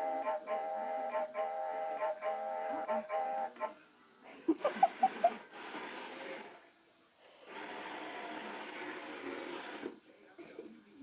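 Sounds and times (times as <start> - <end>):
toy train motor whirring: 4.6 - 10.0.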